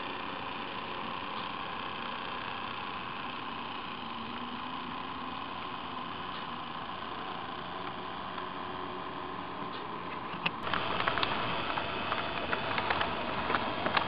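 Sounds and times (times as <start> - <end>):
model train rolling with steady hum: 0.0 - 14.0
rapid clicking of wheels on track: 10.6 - 14.0.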